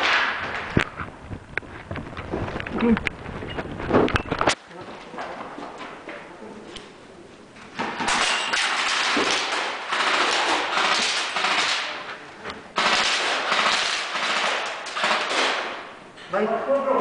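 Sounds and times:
airsoft guns firing full auto: 0:08.0 - 0:12.0, 0:12.8 - 0:16.0.

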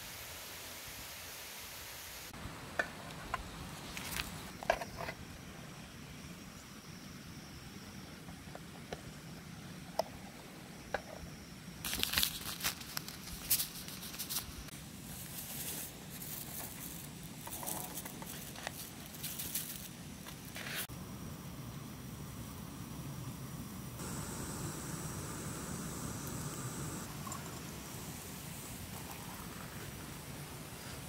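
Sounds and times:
paper sachet crinkling and tearing: 0:11.9 - 0:14.5.

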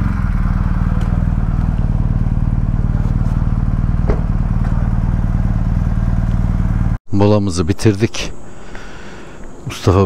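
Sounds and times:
motorcycle engine running: 0:00.0 - 0:07.0.

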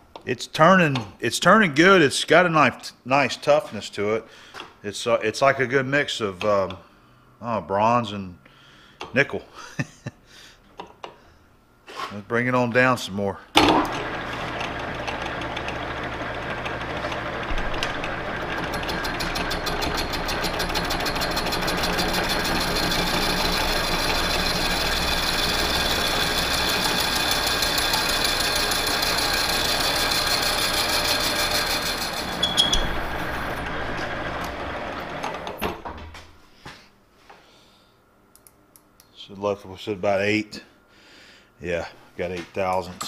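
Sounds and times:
lathe running: 0:13.7 - 0:35.6
lathe spinning down: 0:13.7 - 0:35.6
lathe cutting metal: 0:13.9 - 0:35.0.

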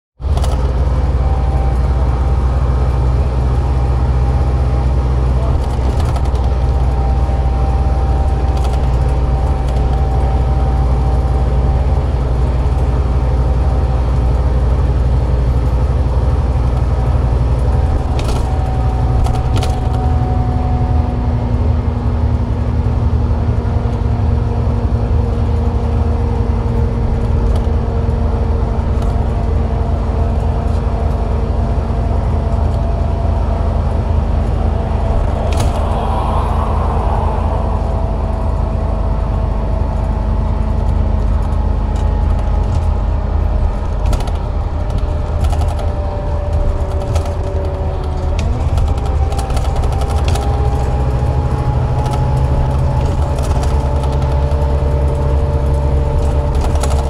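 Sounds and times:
bus engine drone: 0:00.2 - 0:57.0.

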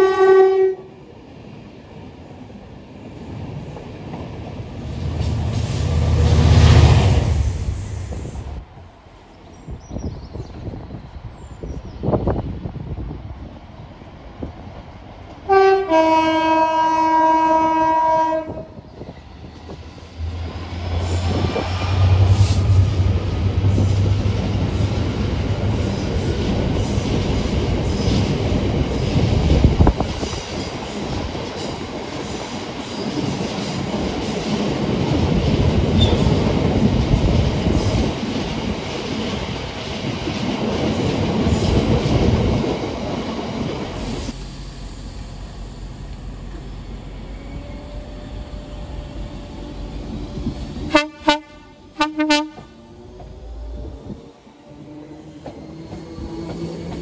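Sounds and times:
locomotive two-tone horn: 0:00.0 - 0:00.9, 0:15.5 - 0:18.8, 0:50.8 - 0:52.9.

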